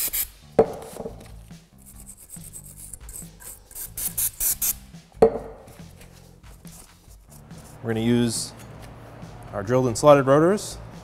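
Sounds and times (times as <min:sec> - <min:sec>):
sharp knock: 0:05.2 - 0:05.6.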